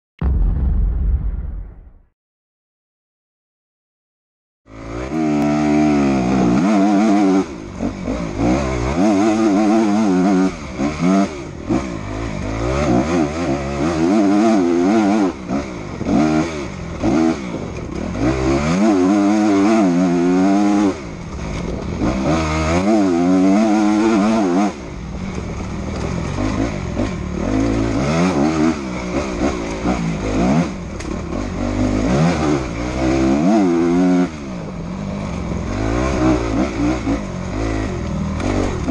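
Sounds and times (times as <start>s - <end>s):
low wind rumble: 0.2s - 2.1s
motorcycle engine revving: 4.7s - 38.9s.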